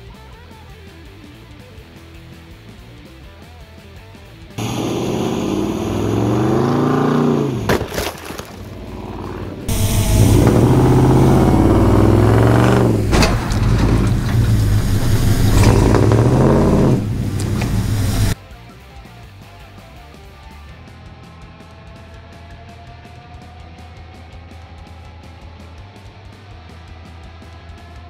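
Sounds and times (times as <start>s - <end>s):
sharp bangs: 4.6s - 18.4s
truck engine accelerating: 4.6s - 18.4s.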